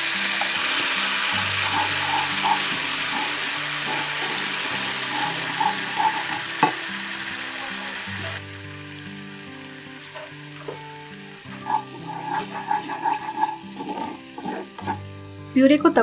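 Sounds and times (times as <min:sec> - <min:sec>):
puree sizzling in a pan: 0:00.0 - 0:16.0
wooden spatula stirring: 0:01.6 - 0:06.4, 0:11.6 - 0:15.0.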